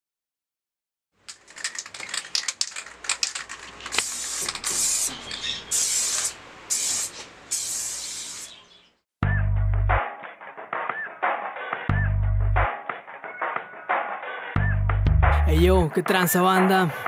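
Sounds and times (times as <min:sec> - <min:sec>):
spray can rattling: 0:01.2 - 0:08.6
spray paint hissing: 0:02.0 - 0:08.6
hip-hop beat with heavy bass: 0:09.2 - 0:10.2, 0:10.8 - 0:12.9, 0:14.6 - 0:17.0.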